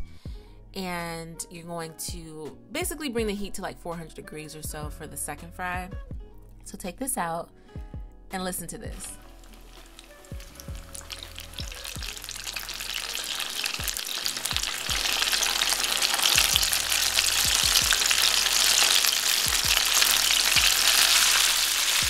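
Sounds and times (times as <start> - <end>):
faint low beat: 2.0 - 7.0, 7.8 - 9.2
chicken deep-frying in oil: 9.1 - 22.0.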